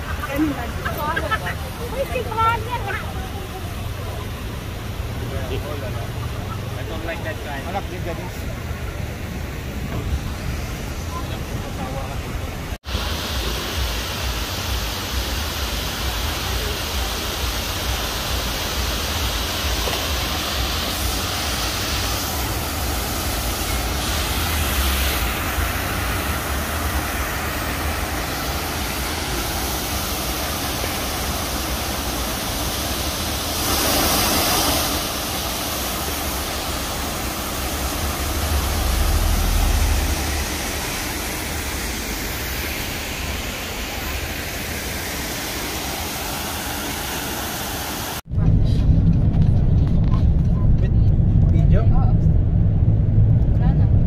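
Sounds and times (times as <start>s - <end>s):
fountain water splashing: 0.0s - 48.3s
low microphone rumble: 36.4s - 43.8s, 48.3s - 54.0s.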